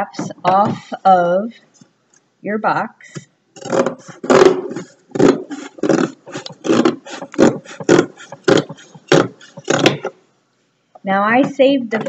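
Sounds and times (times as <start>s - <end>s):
scissors cutting cardboard: 3.6s - 10.1s.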